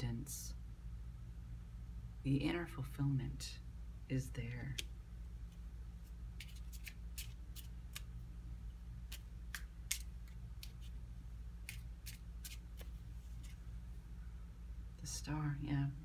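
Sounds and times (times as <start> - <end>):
faint low hum: 0.0 - 16.0
cards clicking and snapping: 6.4 - 8.1, 9.1 - 11.0.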